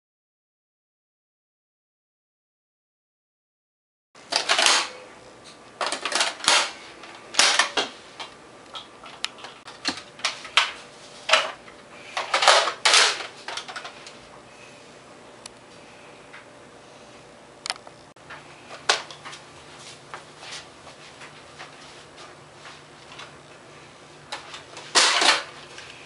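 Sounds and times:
toy blaster plastic clacks: 4.3 - 5.0.

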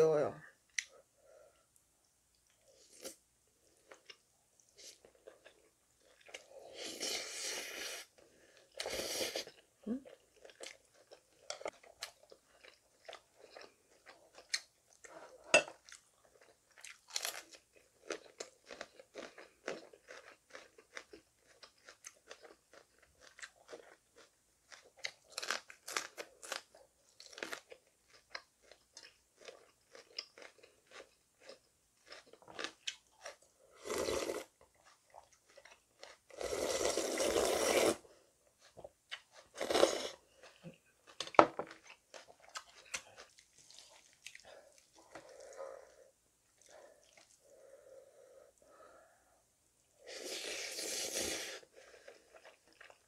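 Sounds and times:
person chewing crunchy food: 2.3 - 49.3, 50.0 - 53.0
slurping broth: 36.3 - 38.1, 39.6 - 40.2, 50.0 - 52.0.

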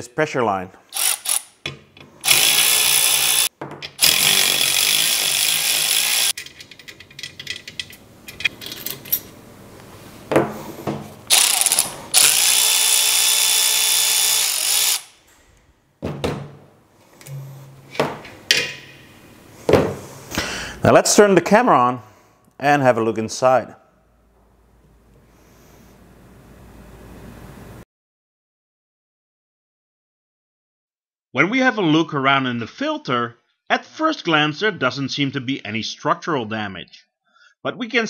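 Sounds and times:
cordless ratchet running: 0.9 - 1.6, 2.2 - 6.4, 11.3 - 15.2
metal fittings clicking and knocking: 6.3 - 9.2.

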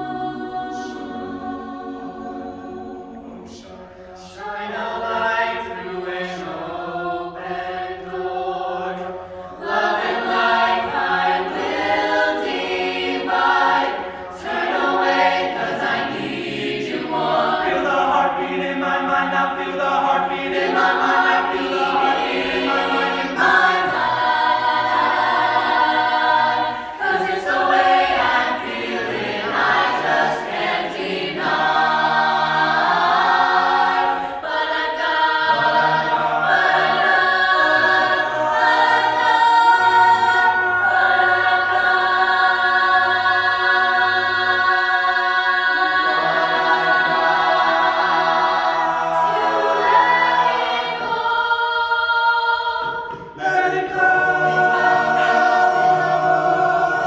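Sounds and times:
a cappella choir singing: 0.0 - 57.0.

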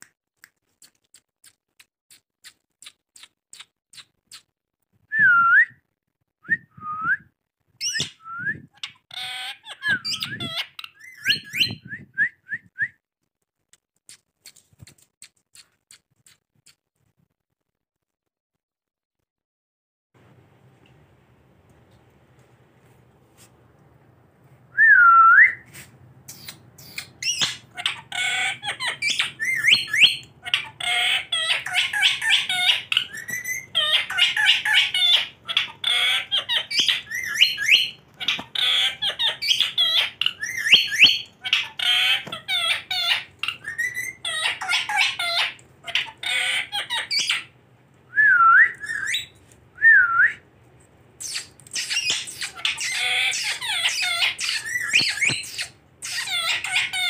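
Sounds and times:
parakeets calling rapidly: 26.3 - 47.5, 51.2 - 57.0.

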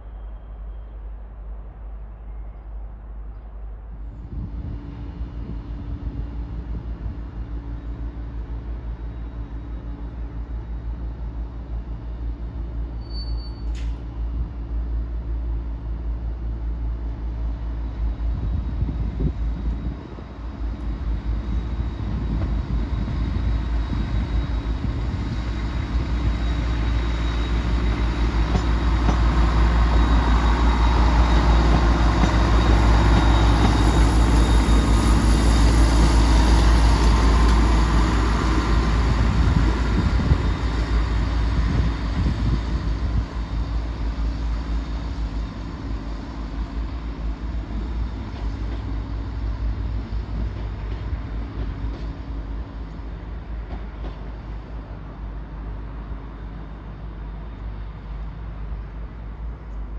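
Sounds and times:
rail and wheel noise: 0.0 - 59.9
diesel engines rumbling: 13.7 - 59.9.

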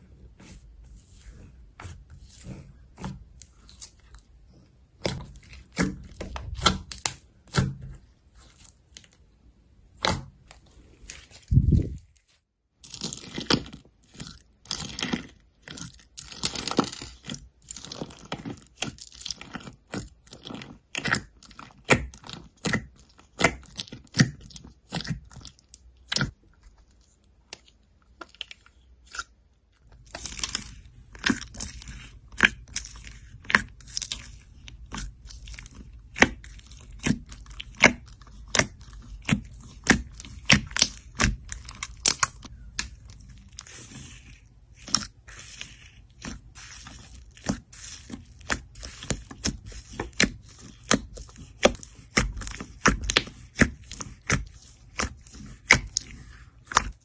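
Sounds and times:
fingers squishing slime: 0.0 - 12.2, 12.8 - 57.0
slime crackles and pops: 29.9 - 44.0.

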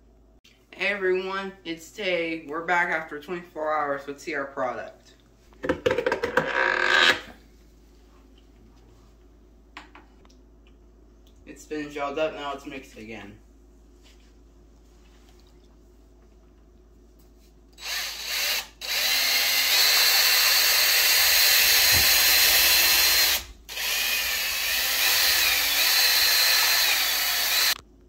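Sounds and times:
electric drill whining: 6.4 - 7.3, 17.8 - 27.8.

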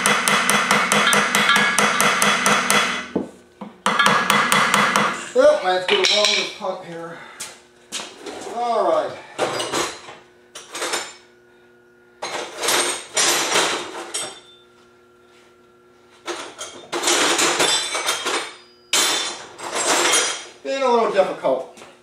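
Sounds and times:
steel tools clanking: 12.2 - 14.6, 16.4 - 20.5.

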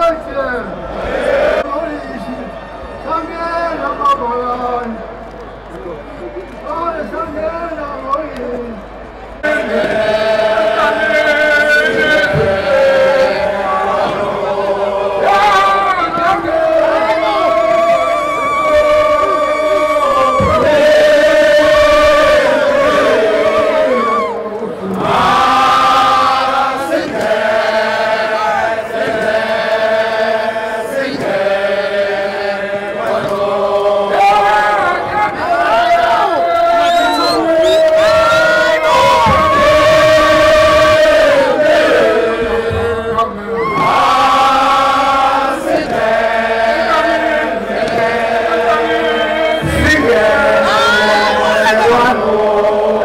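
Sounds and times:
men chanting in parts: 9.4 - 53.0.

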